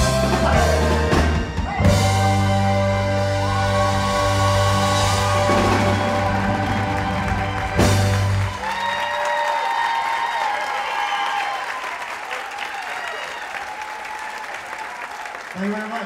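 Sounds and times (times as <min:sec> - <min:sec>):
rock band playing chord: 0:00.0 - 0:08.6
audience applauding: 0:03.1 - 0:16.0.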